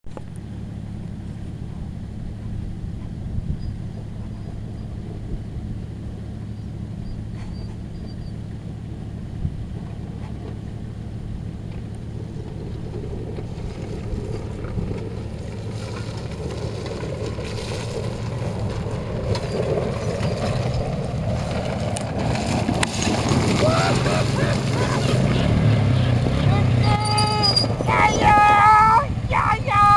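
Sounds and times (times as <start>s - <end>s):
quad bike engine running: 0.1s - 29.9s.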